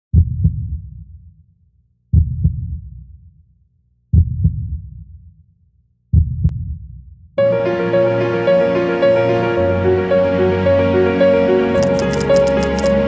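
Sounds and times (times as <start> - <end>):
deep heartbeat-like thumps: 0.1 - 1.3, 2.1 - 3.3, 4.1 - 5.3, 6.1 - 7.2
sharp click: 11.8 - 13.0.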